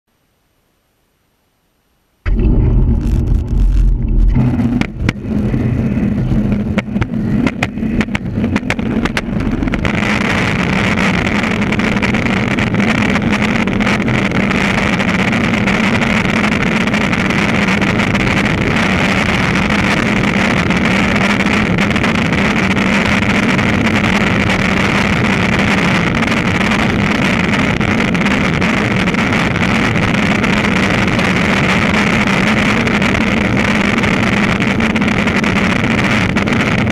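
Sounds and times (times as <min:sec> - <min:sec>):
skateboard wheels roaring on asphalt: 0:02.3 - 0:36.9.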